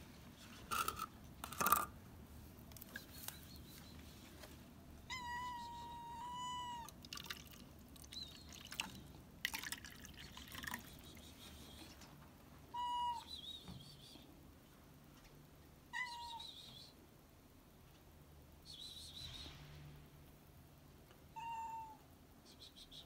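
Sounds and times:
cat meowing: 5.1 - 6.9, 12.7 - 13.3, 15.9 - 16.4, 21.3 - 22.0
water pouring into bowl: 7.0 - 7.7, 8.5 - 10.9.

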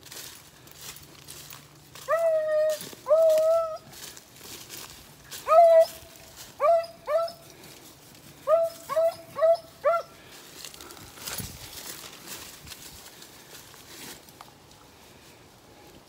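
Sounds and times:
rustling through dry leaves: 0.0 - 16.0
dog barking: 8.5 - 10.1.

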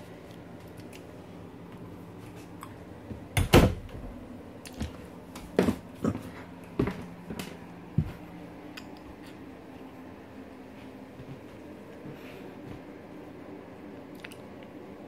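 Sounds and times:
steady low hum: 0.0 - 15.0
footsteps thudding on floor: 6.8 - 8.3.

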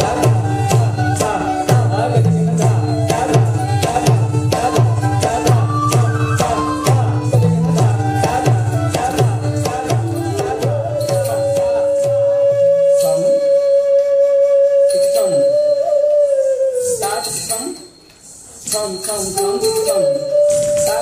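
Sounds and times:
bamboo flute note: 10.4 - 17.4, 19.6 - 21.0.

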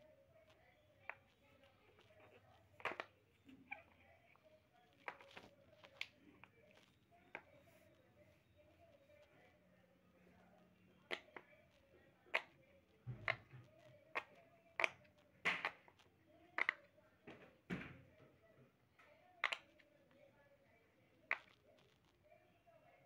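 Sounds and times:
fidget toy bubbles popping: 2.0 - 3.8, 10.9 - 16.9, 19.4 - 19.8.

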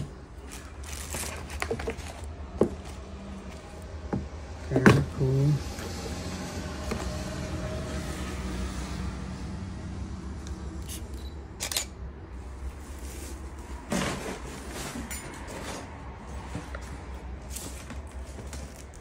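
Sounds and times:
scuffs and rustles: 0.4 - 3.8.

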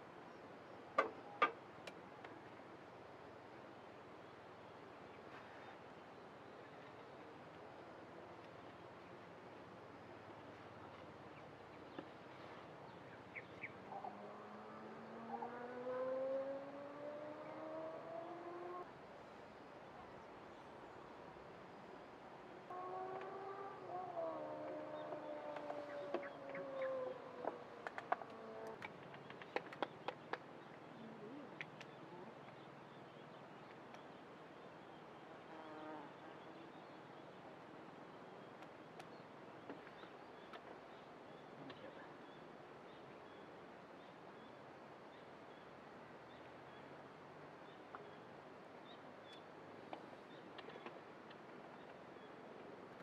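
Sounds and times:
quiet outdoor ambience: 0.0 - 53.0
vehicle engine accelerating: 14.1 - 18.8.

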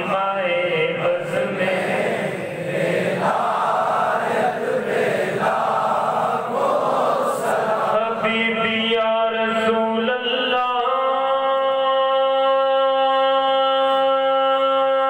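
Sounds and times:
men chanting in unison: 0.0 - 9.6.

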